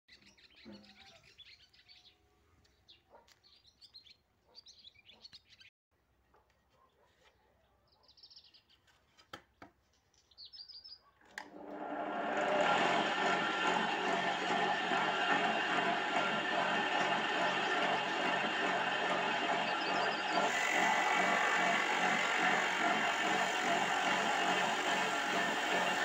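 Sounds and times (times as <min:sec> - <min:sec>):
small birds chirping: 0:00.1 - 0:05.7, 0:09.8 - 0:11.2
electric motor spinning drum: 0:11.4 - 0:26.0.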